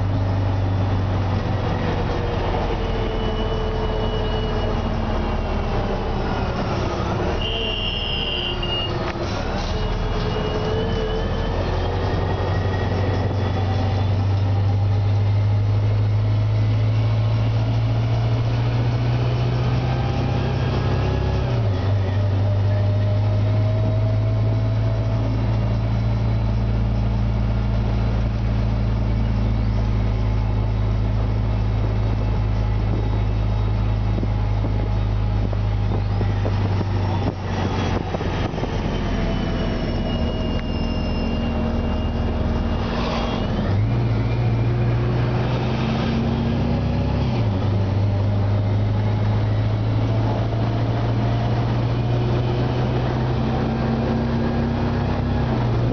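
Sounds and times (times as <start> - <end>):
bus engine low drone: 0.0 - 55.9.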